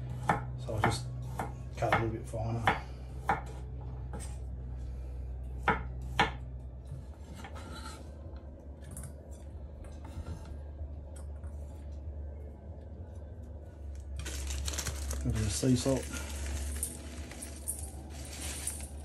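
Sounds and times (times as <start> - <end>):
knife chopping on cutting board: 0.2 - 4.2
knife scraping board: 7.2 - 8.1.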